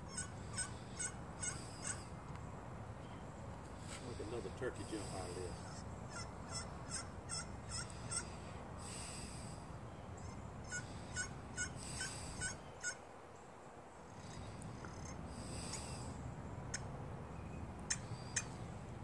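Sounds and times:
turkey call raspy yelps: 0.0s - 2.1s, 5.6s - 8.4s, 10.2s - 13.0s.

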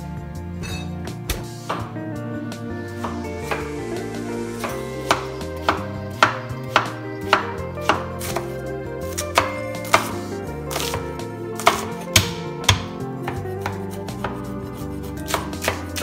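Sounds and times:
background music: 0.0s - 16.0s
knife chopping on wooden board: 9.4s - 11.0s, 11.6s - 14.4s, 15.3s - 16.0s.

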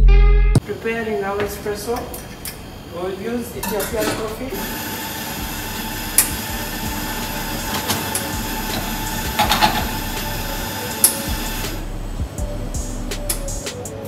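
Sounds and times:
espresso machine hissing: 1.1s - 12.2s.

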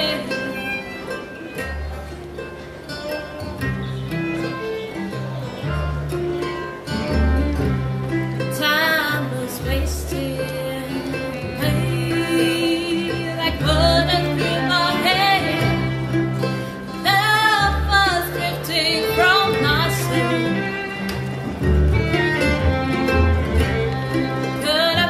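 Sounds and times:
woman singing: 0.0s - 0.8s, 8.5s - 20.8s, 24.5s - 25.0s
acoustic guitar: 0.0s - 25.0s
fiddle: 0.0s - 25.0s
mandolin: 0.0s - 25.0s
upright bass: 1.5s - 25.0s.

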